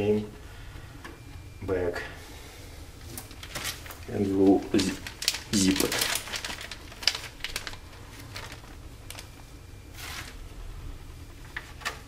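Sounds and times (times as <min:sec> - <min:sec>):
plastic bag crinkling: 0:03.2 - 0:09.4.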